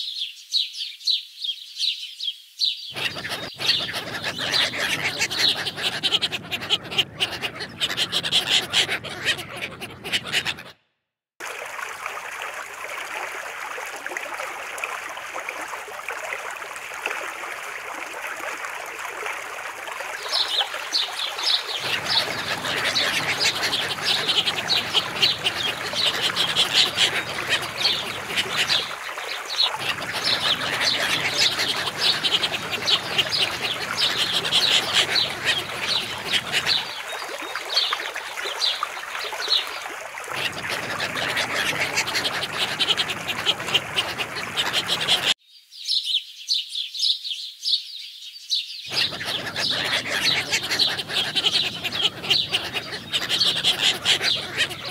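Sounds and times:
ducks calling: 2.9 - 10.7, 21.8 - 29.0, 29.6 - 37.0, 40.4 - 45.4, 48.9 - 54.9.

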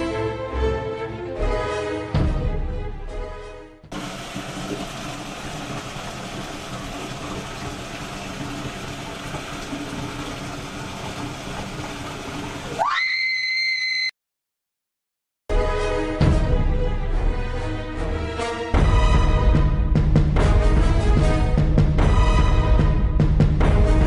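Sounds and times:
woman screaming: 12.8 - 14.1.

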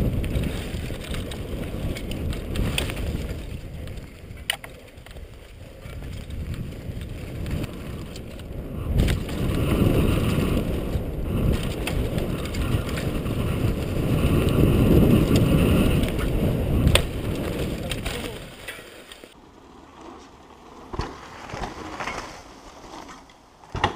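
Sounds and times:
bike tyres rumbling on dirt: 0.0 - 23.9
sharp knocks over bumps: 20.9 - 23.9.

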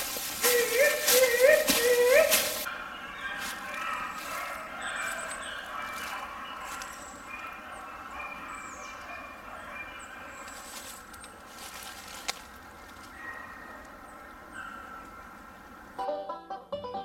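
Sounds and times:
beagles baying: 0.0 - 16.0
small birds chirping: 0.0 - 16.0
banjo music: 16.0 - 17.0.

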